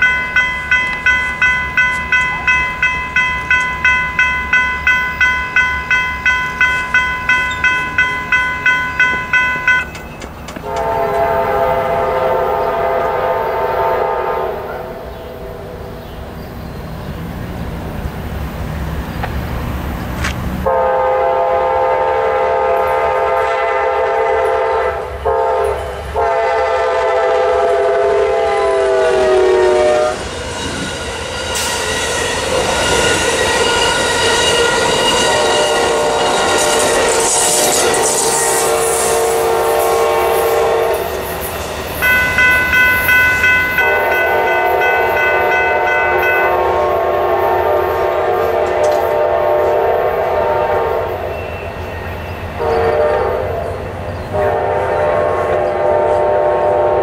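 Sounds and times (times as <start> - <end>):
crossing bells ringing: 0.0 - 14.0, 30.0 - 50.2
passing rail cars clattering: 0.0 - 57.0
locomotive horn blasts: 10.6 - 15.8, 20.6 - 31.0, 32.3 - 41.3, 42.0 - 51.5, 52.6 - 57.0.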